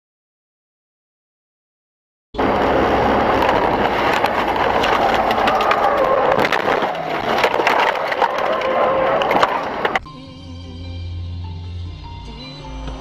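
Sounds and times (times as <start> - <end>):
car crash crunching: 2.4 - 10.0.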